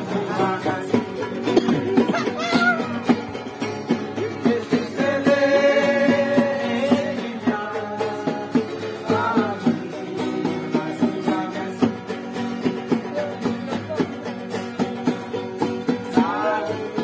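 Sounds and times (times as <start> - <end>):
person singing: 0.0 - 3.1
acoustic guitars strumming: 0.0 - 17.0.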